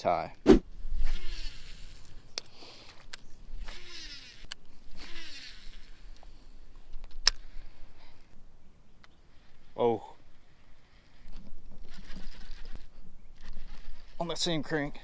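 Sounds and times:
fishing line whirring off reel: 0:00.8 - 0:02.2, 0:02.9 - 0:06.2, 0:11.8 - 0:14.4
reel clicks: 0:11.8 - 0:14.3.

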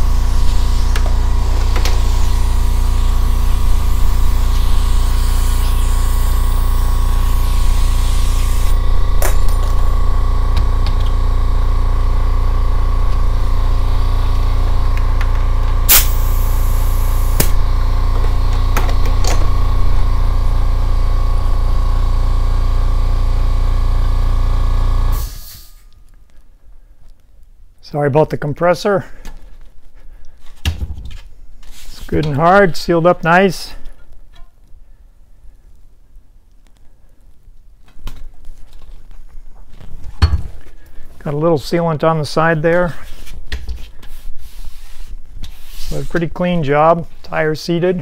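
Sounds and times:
air hissing: 0:00.0 - 0:10.0, 0:15.8 - 0:17.8, 0:25.1 - 0:25.9
air compressor humming: 0:00.0 - 0:25.9.

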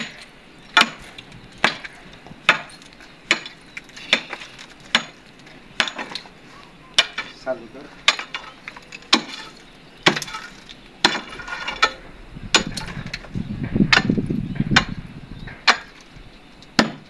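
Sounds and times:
concrete chips clinking: 0:07.0 - 0:12.0
rubble scraping rumble: 0:10.2 - 0:16.3.

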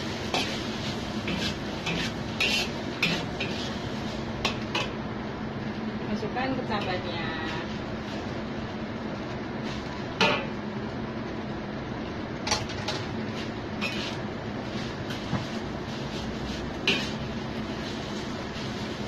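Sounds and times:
metal spatula scraping a wok: 0:00.0 - 0:04.9, 0:13.3 - 0:19.0
steady background noise: 0:00.0 - 0:19.0.

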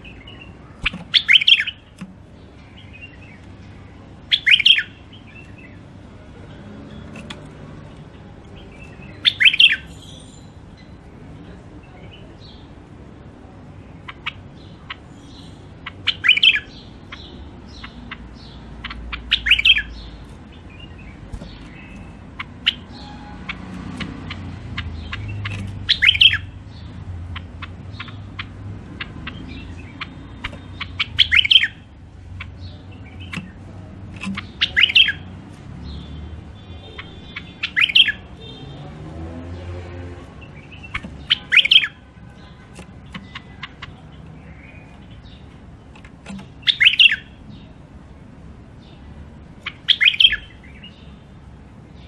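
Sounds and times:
sharp bird chips: 0:00.0 - 0:05.9, 0:08.5 - 0:11.0, 0:13.8 - 0:38.8, 0:40.4 - 0:47.8, 0:48.7 - 0:52.0
bulbul singing warbled phrases: 0:00.0 - 0:52.0.

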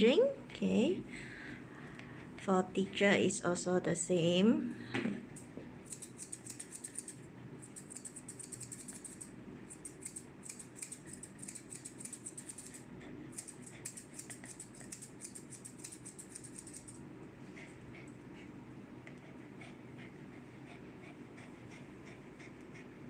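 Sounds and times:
scissors snipping hair: 0:05.4 - 0:17.0.

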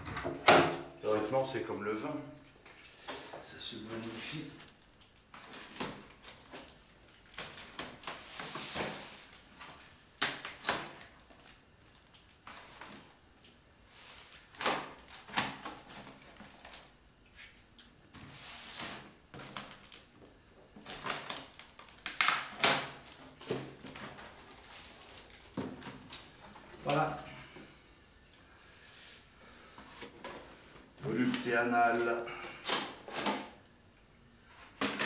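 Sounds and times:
cardboard rustling and scraping: 0:07.5 - 0:09.9, 0:23.0 - 0:26.7
packing tape tearing: 0:20.8 - 0:26.2.

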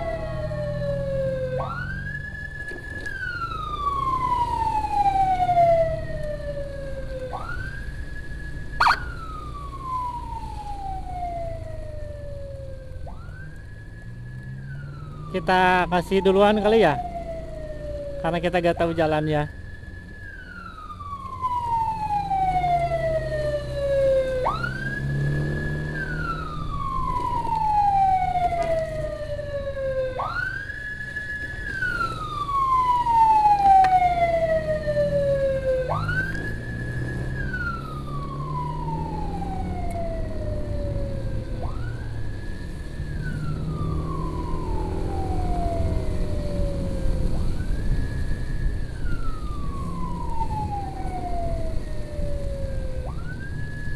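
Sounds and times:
emergency siren wailing: 0:00.0 - 0:53.9
road noise: 0:00.0 - 0:53.9
motorbike engine: 0:19.9 - 0:50.3.

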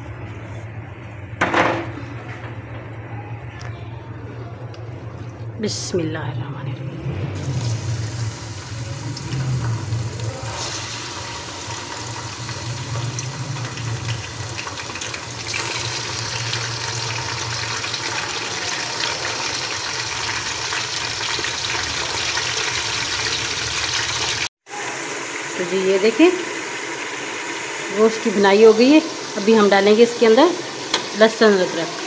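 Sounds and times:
meat sizzling in hot oil: 0:07.5 - 0:32.0.

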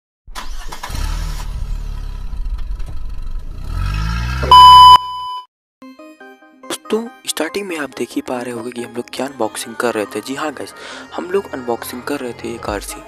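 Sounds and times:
car engine starting and revving: 0:00.3 - 0:04.9
high-pitched beep: 0:04.4 - 0:05.5.

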